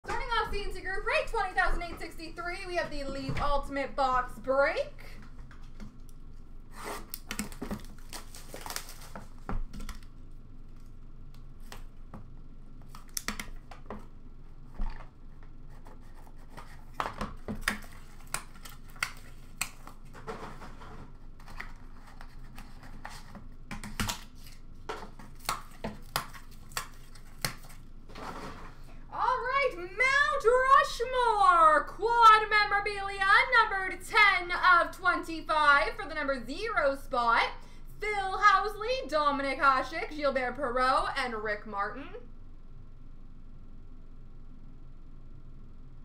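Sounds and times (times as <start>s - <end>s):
cardboard rustling and tearing: 6.7s - 10.0s, 15.7s - 28.6s.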